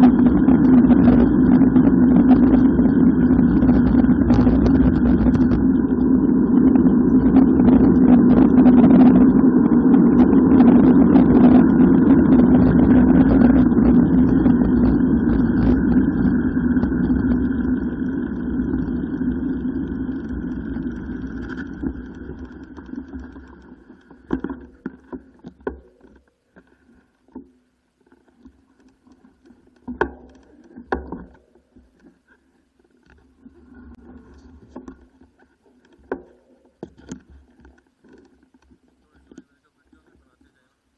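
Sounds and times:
wind rush and tyre noise: 0:00.0 - 0:22.6.

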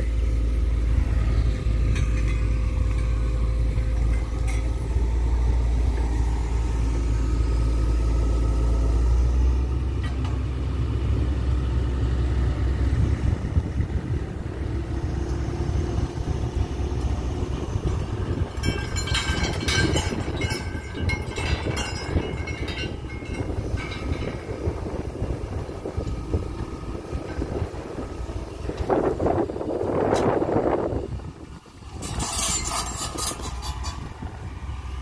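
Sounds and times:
excavator diesel engine running: 0:00.0 - 0:35.0
low rumble: 0:00.0 - 0:35.0
metallic clinks: 0:18.6 - 0:24.6.

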